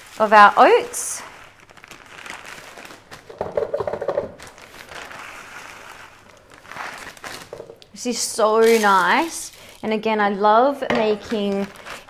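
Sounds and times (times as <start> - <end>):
oats poured into plastic jug: 4.4 - 7.7.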